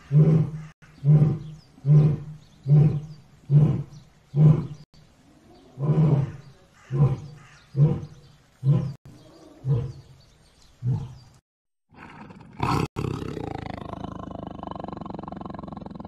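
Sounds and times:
steady animal sound: 0.0s - 10.2s, 10.8s - 16.0s
big cat grunting roars: 11.9s - 16.0s.

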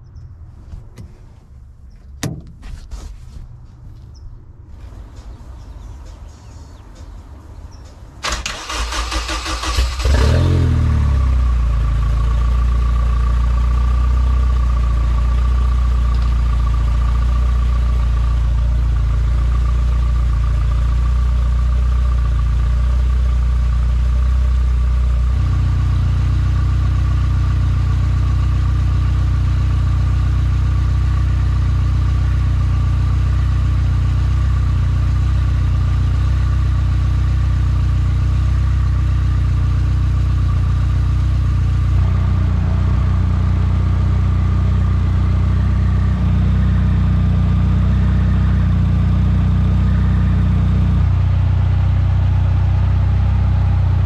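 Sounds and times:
car engine starting and idling: 0.0s - 54.0s.

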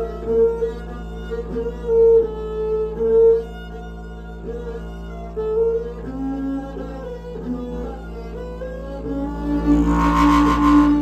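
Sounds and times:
bamboo flute melody: 0.0s - 3.8s, 4.4s - 11.0s
bowed string instrument: 0.0s - 11.0s
low drone: 7.4s - 11.0s.

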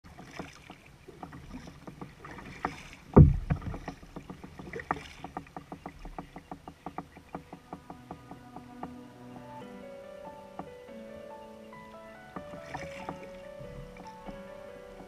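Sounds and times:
kayak paddle strokes: 0.0s - 15.0s
loud low thump: 3.2s - 3.9s.

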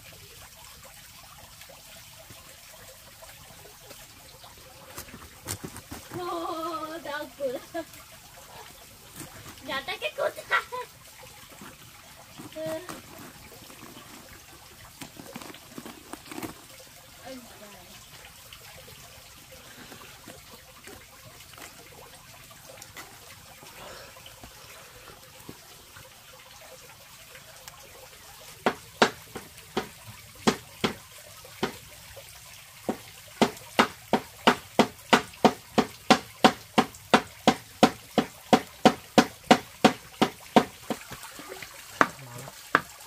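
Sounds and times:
faint trickling water: 0.0s - 43.0s
sharp knocks: 28.6s - 31.0s, 32.9s - 41.1s.

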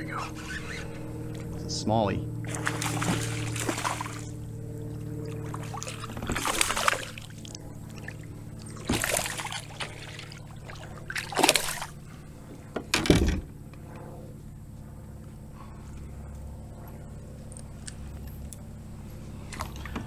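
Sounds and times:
fish splashing at water surface: 2.5s - 12.0s.

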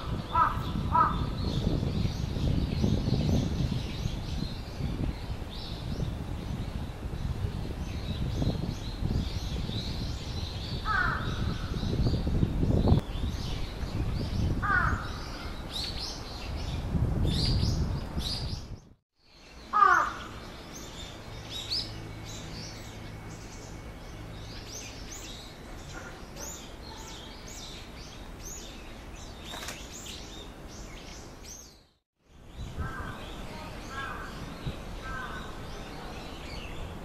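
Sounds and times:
small birds chirping: 0.0s - 37.0s
crow cawing: 0.3s - 1.2s, 19.7s - 20.4s.

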